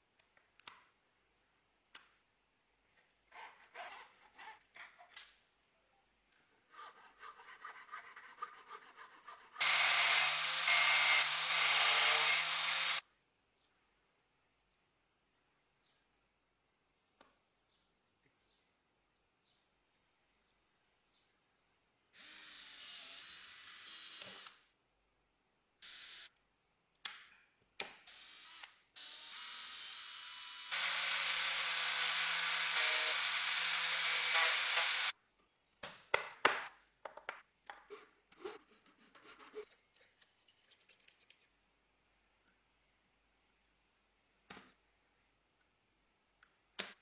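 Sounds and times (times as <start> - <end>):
table saw cutting: 9.6 - 13.0, 29.0 - 35.1.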